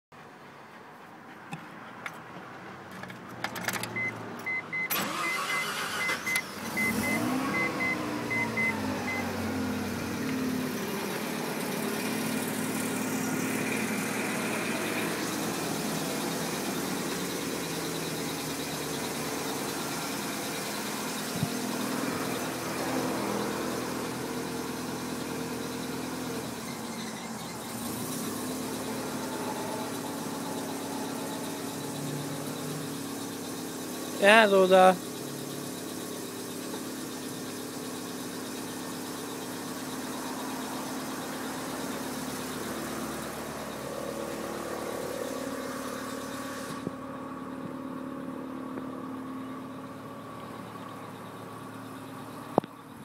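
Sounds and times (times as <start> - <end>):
rotary engine starting and idling: 0.2 - 53.0
warning chime beeping: 4.0 - 9.4, 14.2 - 38.4.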